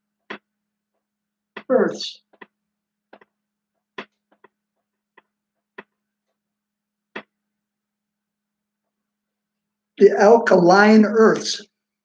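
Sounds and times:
marker writing on whiteboard: 0:00.0 - 0:07.5.

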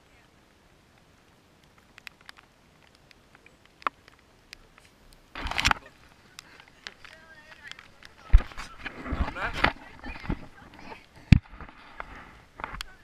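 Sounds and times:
scraping rustle: 0:02.1 - 0:13.0
camera handling rustling and clicks: 0:04.6 - 0:12.1.

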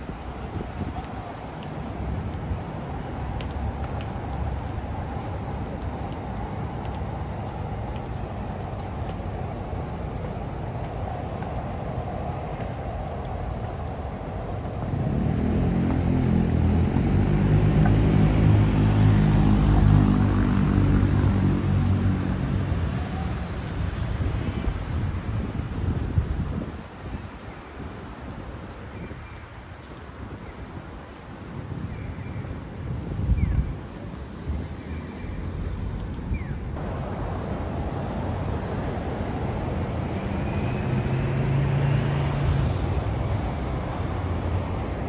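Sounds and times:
busy street ambience: 0:00.0 - 0:45.0
vehicle passing by: 0:14.8 - 0:24.3, 0:36.8 - 0:45.0.

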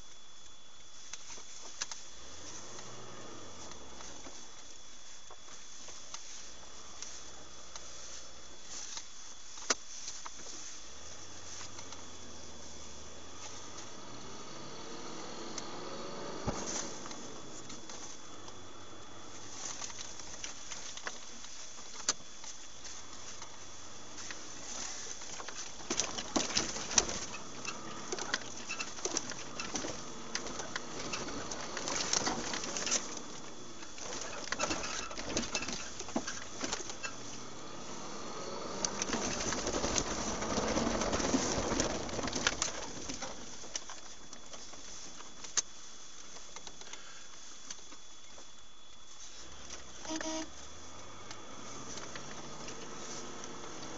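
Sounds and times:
faint constant whine: 0:00.0 - 0:53.9
steady background hiss: 0:00.0 - 0:53.9
rattles and knocks in cab: 0:38.8 - 0:45.0.

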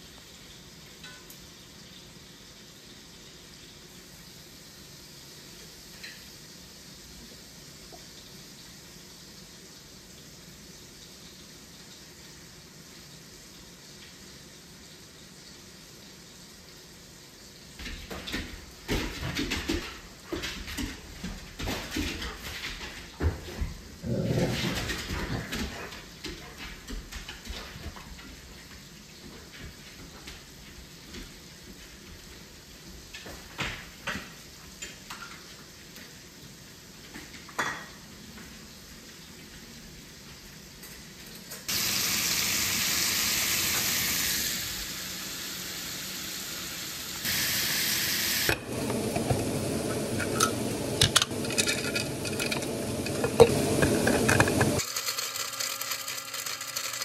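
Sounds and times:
food sizzling in a pan: 0:00.0 - 0:20.3, 0:28.4 - 0:55.5
dishes and utensils clattering: 0:37.3 - 0:38.0, 0:48.5 - 0:54.8.

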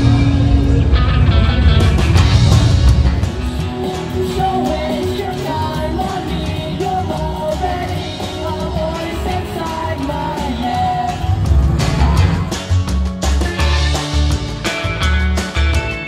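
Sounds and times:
rock music: 0:00.0 - 0:16.0
woman singing: 0:04.0 - 0:11.4.

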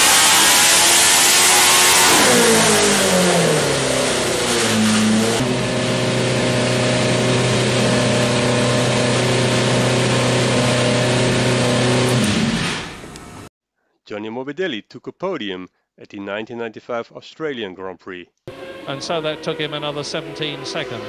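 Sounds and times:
racing engine revving and idling: 0:00.0 - 0:13.5, 0:18.5 - 0:21.0.

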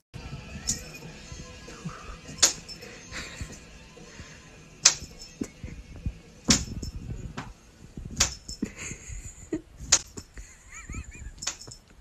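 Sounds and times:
hand slaps: 0:02.4 - 0:02.7, 0:04.8 - 0:05.2.

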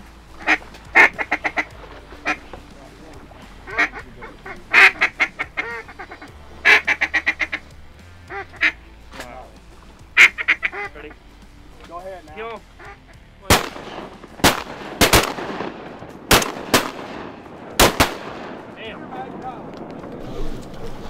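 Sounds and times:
ducks quacking: 0:00.0 - 0:09.0, 0:10.0 - 0:11.3, 0:12.4 - 0:15.4.

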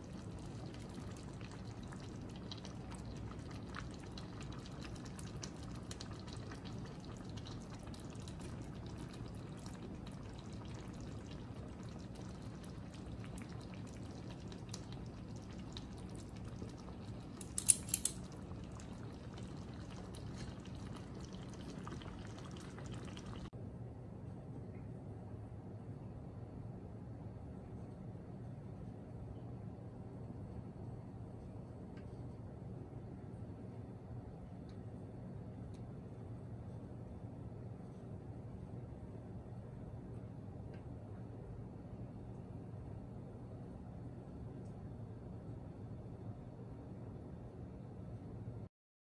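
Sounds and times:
sauce bubbling in a pot: 0:00.0 - 0:23.6
utensil clicking on pot: 0:17.3 - 0:18.4.

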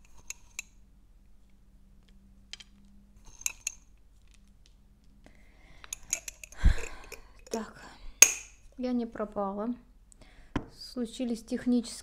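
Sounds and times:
nuts clicking against glass jar: 0:02.5 - 0:04.4, 0:05.8 - 0:08.6.

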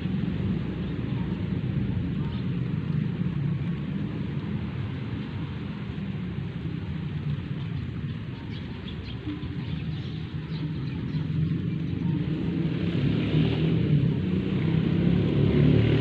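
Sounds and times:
low engine hum: 0:00.0 - 0:16.0.

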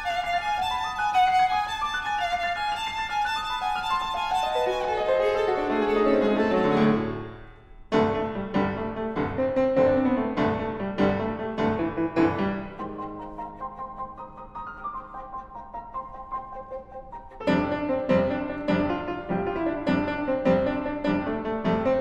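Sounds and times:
viola playing: 0:00.0 - 0:07.5
piano chords: 0:00.0 - 0:22.0.

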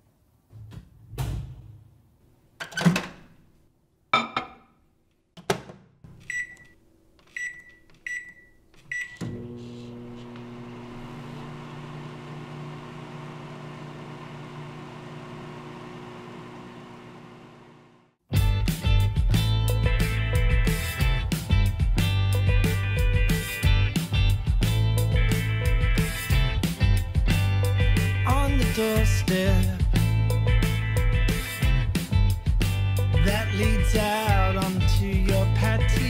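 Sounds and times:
microwave humming: 0:06.1 - 0:18.2
microwave keypad beeps: 0:06.2 - 0:09.2.

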